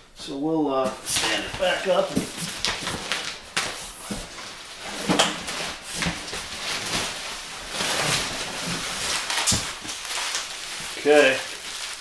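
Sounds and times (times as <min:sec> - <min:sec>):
cardboard flaps rustling: 0:00.8 - 0:12.0.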